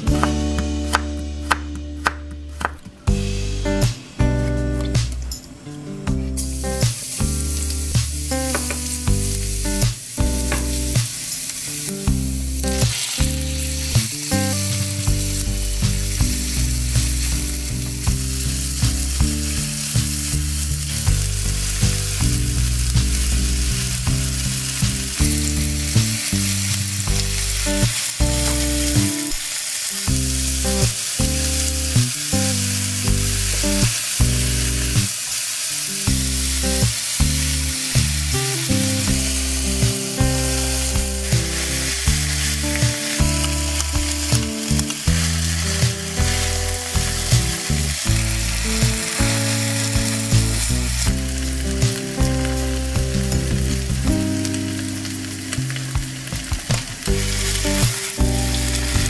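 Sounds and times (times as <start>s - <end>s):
food sizzling in a wok: 3.1s - 59.0s
spatula striking a pan: 9.8s - 11.2s.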